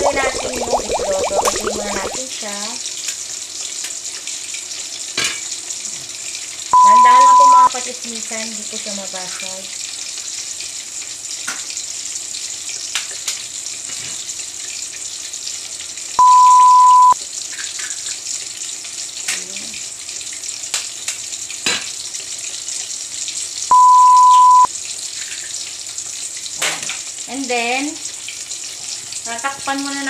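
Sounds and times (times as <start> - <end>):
eggs cracking: 0.0 - 2.2
water boiling in a pot: 0.0 - 16.2, 17.2 - 23.7, 24.7 - 30.0
one-pitch beeps: 6.8 - 7.7, 16.2 - 17.2, 23.7 - 24.7.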